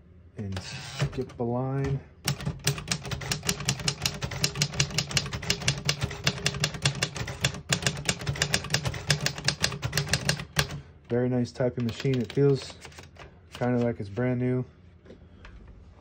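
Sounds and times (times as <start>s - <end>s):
typewriter keys clicking: 2.3s - 10.8s, 11.8s - 13.9s.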